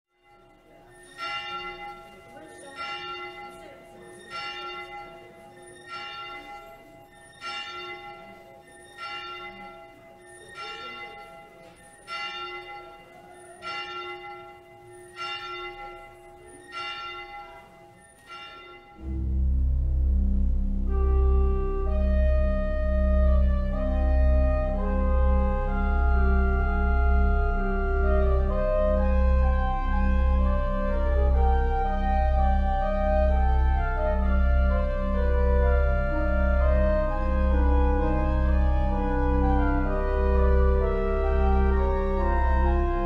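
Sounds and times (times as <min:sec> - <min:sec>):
church bell tolling: 0:00.1 - 0:43.0
loud organ music: 0:19.0 - 0:43.0.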